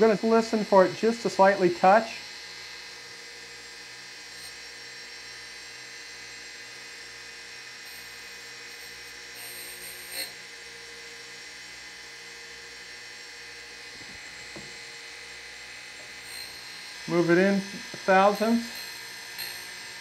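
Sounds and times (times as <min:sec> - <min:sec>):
surface grinder whining: 0:00.0 - 0:20.0
tool touching grinding wheel: 0:13.9 - 0:14.9, 0:15.9 - 0:19.8.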